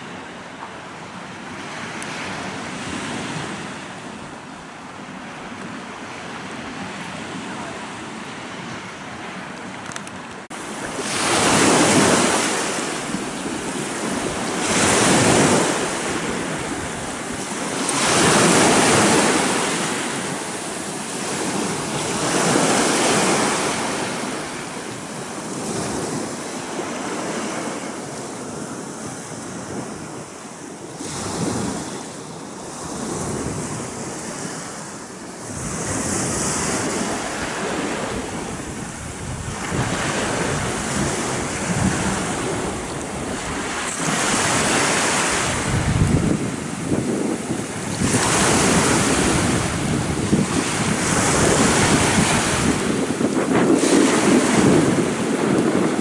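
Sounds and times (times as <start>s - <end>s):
small waves breaking on shore: 0.0s - 56.0s
wind on microphone: 0.0s - 56.0s.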